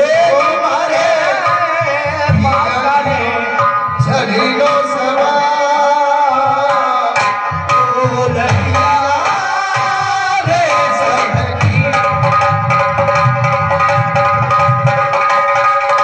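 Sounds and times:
hand drum beating: 6.4s - 16.0s.

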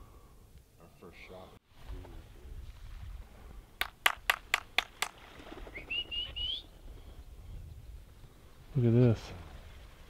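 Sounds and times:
sharp clicks: 3.8s - 5.2s
rising whistled call: 5.6s - 6.8s.

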